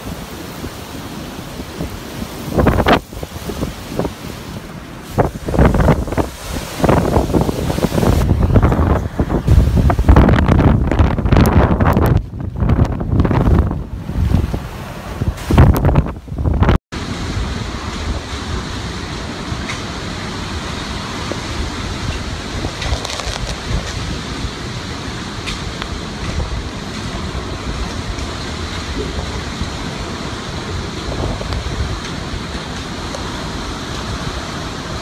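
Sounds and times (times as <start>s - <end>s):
wind buffeting microphone: 0.0s - 18.3s, 25.4s - 35.0s
heavy rain: 0.0s - 35.0s
wind: 0.0s - 35.0s.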